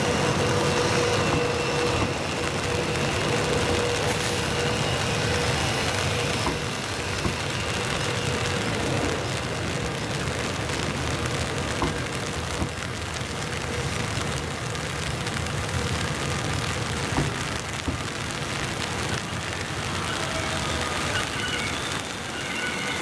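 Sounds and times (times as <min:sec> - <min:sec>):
train wheels rumbling on rails: 0:00.0 - 0:23.0
faint wheel squeals: 0:19.9 - 0:23.0.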